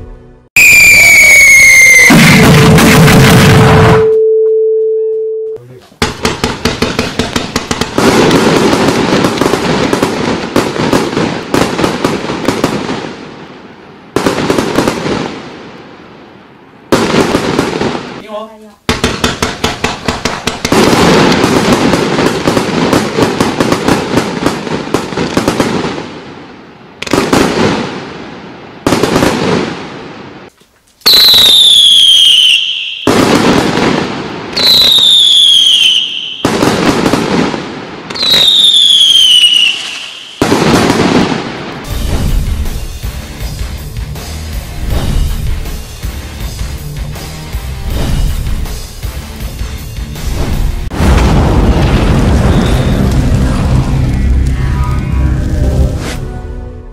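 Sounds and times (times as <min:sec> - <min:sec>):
fireworks bangs: 0:00.6 - 0:04.0, 0:05.9 - 0:43.1, 0:44.8 - 0:45.9, 0:47.8 - 0:49.1, 0:50.1 - 0:56.2
falling firework whistle: 0:00.6 - 0:04.2, 0:31.0 - 0:33.5, 0:34.6 - 0:36.7, 0:38.1 - 0:40.7, 0:51.0 - 0:56.9.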